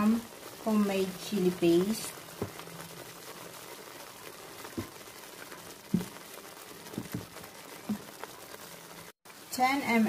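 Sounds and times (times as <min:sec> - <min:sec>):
sauce simmering in a pan: 0:00.0 - 0:10.0
bubbles popping: 0:04.6 - 0:08.2.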